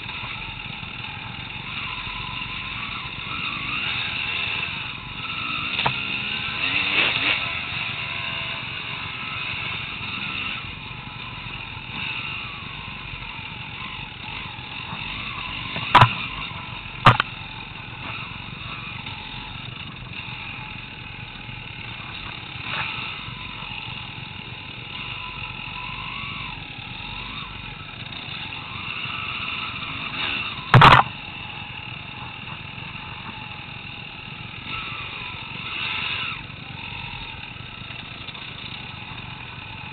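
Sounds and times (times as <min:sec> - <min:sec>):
dirt bike engine: 0:00.0 - 0:39.9
sharp knocks: 0:15.8 - 0:16.2, 0:17.0 - 0:17.3, 0:30.7 - 0:31.1.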